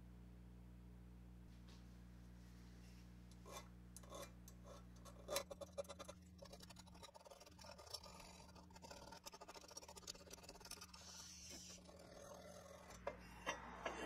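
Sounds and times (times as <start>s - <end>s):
hand file scraping on steel: 3.4s - 14.0s.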